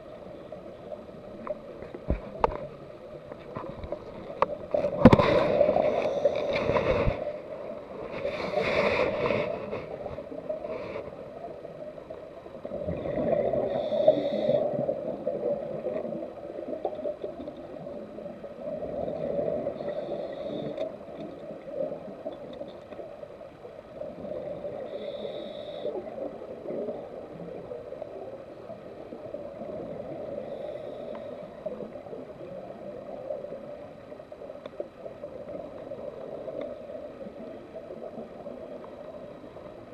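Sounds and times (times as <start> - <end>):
exhaled bubbles gurgling: 11.2 - 39.9
scuba regulator hiss: 13.6 - 14.7, 19.8 - 20.8, 24.8 - 26.0.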